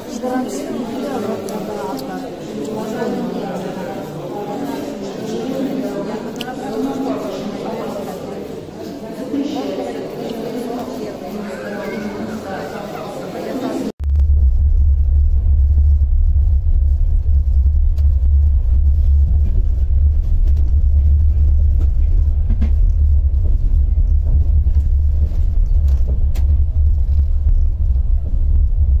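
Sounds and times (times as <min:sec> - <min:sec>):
train rumble inside carriage: 0:16.3 - 0:29.0.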